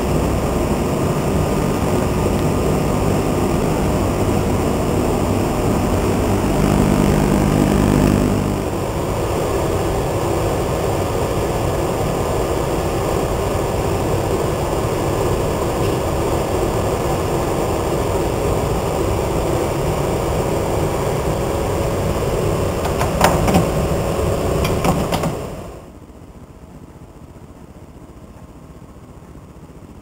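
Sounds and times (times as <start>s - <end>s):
faint steady tones: 0.0s - 9.9s
machine hum and fan noise: 0.0s - 30.0s.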